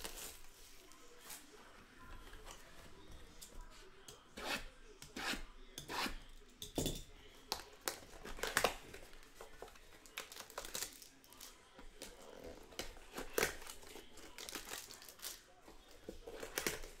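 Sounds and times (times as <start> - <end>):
cardboard and wrapper ripping: 0.0 - 0.6, 7.8 - 17.0.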